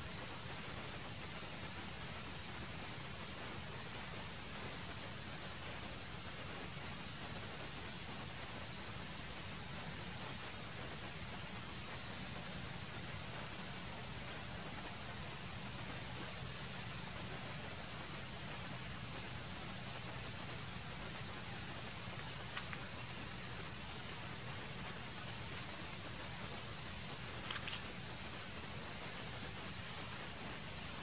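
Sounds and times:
insects buzzing chorus: 0.0s - 31.0s.

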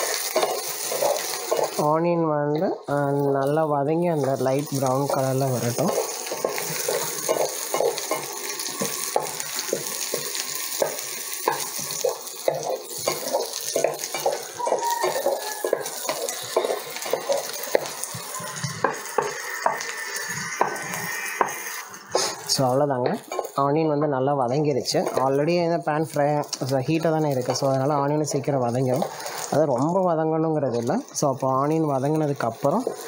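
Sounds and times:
vegetables sizzling in hot oil: 0.0s - 33.0s
wooden spatula knocking on pan: 6.2s - 18.0s, 18.8s - 19.8s.

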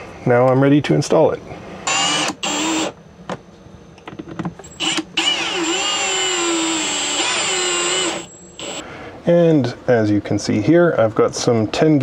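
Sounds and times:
cordless drill driving a screw: 1.9s - 2.9s, 4.7s - 8.8s
drill click: 1.9s - 2.9s, 4.7s - 8.8s.

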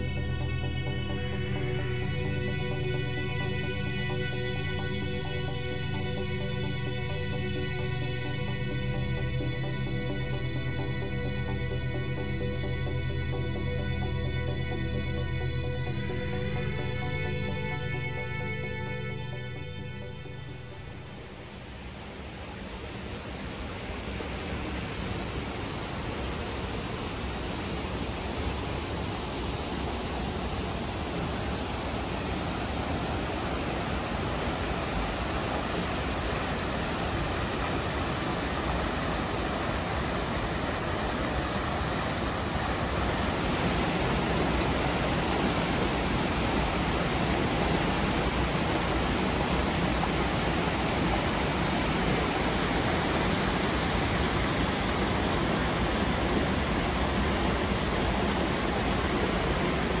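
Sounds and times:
mountain stream rushing over boulders: 20.7s - 60.0s.

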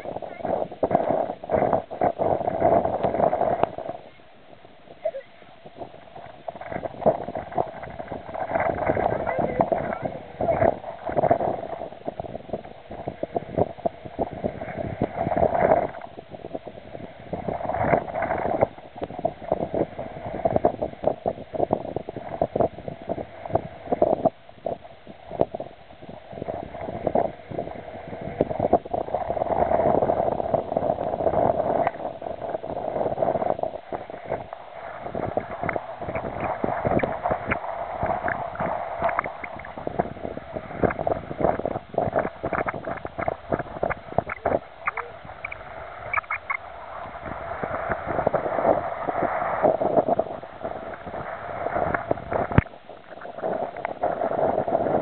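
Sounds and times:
waves washing on rocky shore: 0.0s - 55.0s
wind buffeting microphone: 0.0s - 55.0s.

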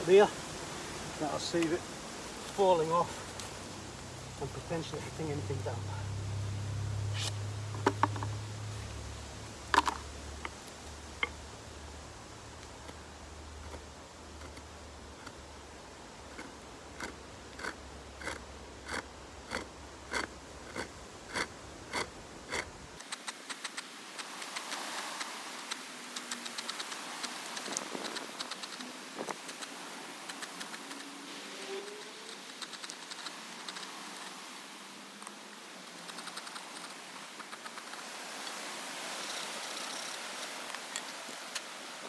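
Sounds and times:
fine scratching and ticks: 7.1s - 8.8s, 12.6s - 15.4s, 16.3s - 34.4s, 35.2s - 38.6s
hand saw cutting wood: 16.4s - 23.6s.

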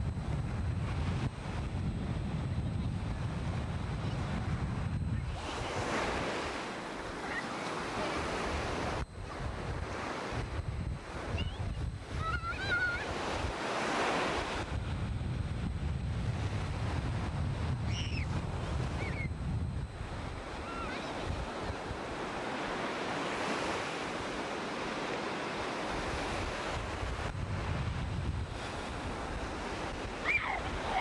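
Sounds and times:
ocean surf on beach: 0.0s - 31.0s
wind buffeting microphone: 0.0s - 31.0s
brief high cries: 30.2s - 31.0s.

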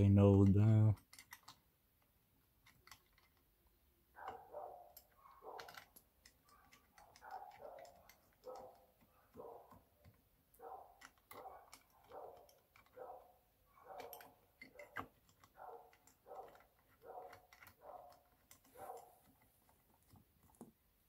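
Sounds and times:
small screws ticking and clicking: 0.0s - 20.7s.

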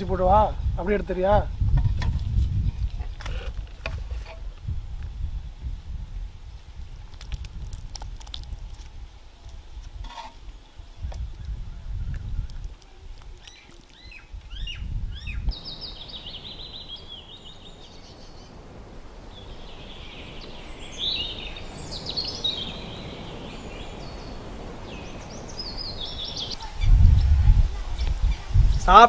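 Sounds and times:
steady outdoor hiss: 0.0s - 29.0s
birds chirping and calling: 10.1s - 29.0s.

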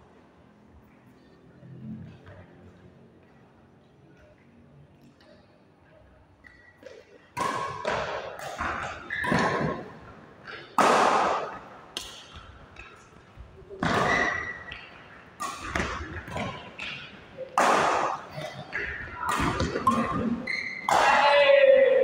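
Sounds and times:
racket hitting shuttlecock: 6.4s - 13.2s, 13.8s - 22.0s.

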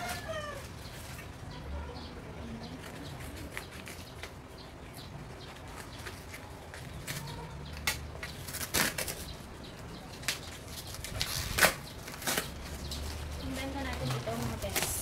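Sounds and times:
cardboard and wrapping rustling: 0.0s - 1.5s, 2.5s - 4.6s, 5.2s - 15.0s.

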